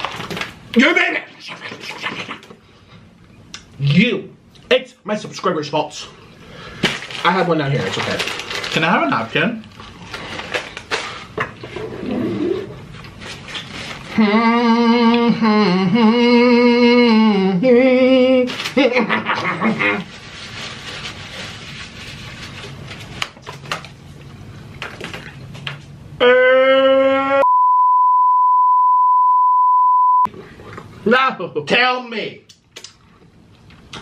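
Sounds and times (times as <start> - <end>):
person's drawn-out voiced sound: 26.2 - 27.5
test-pattern tone beep: 27.4 - 30.3
mouth clicking while eating: 32.5 - 34.0.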